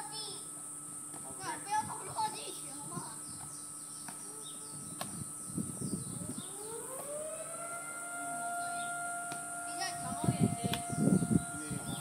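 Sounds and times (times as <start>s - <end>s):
siren winding up: 6.1s - 12.0s.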